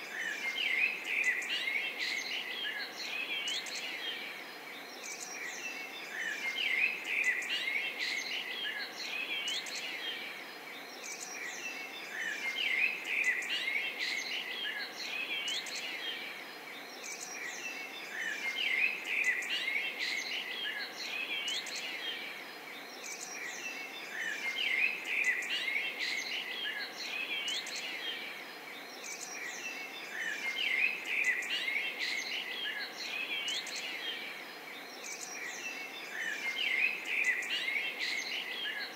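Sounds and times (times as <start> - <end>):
small birds chirping: 0.0 - 38.9.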